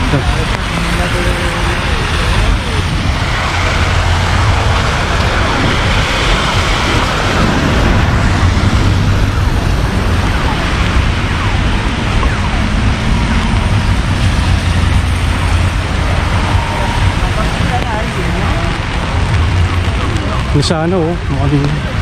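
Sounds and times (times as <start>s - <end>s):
low engine hum: 0.0s - 22.0s
tyres on wet road: 0.0s - 22.0s.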